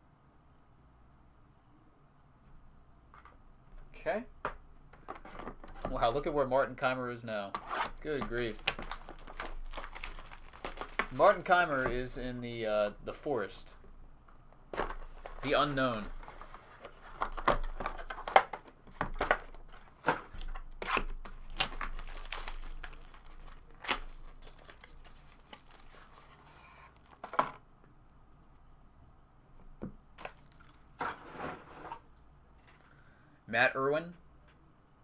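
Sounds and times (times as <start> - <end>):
plastic wrap tearing and crinkling: 7.6 - 12.2, 19.8 - 27.4, 30.2 - 31.0.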